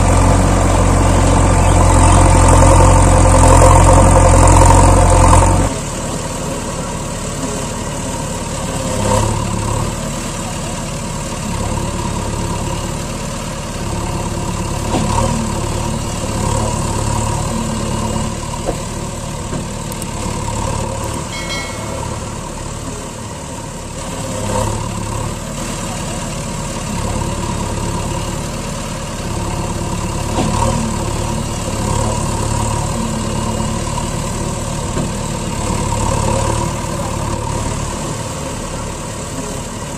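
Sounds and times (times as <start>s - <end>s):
truck engine idling: 0.0s - 39.9s
brief high tones: 21.3s - 23.0s.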